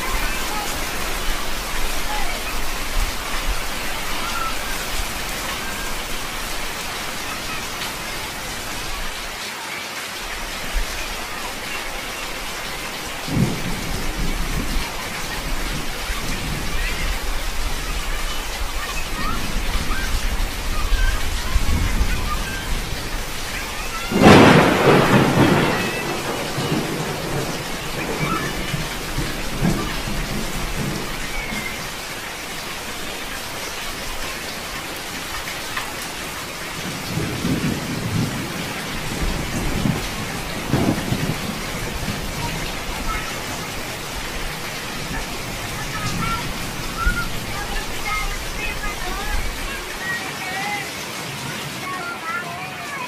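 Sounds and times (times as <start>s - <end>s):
heavy rain on street and roofs: 0.0s - 53.0s
sudden loud rain burst: 0.0s - 53.0s.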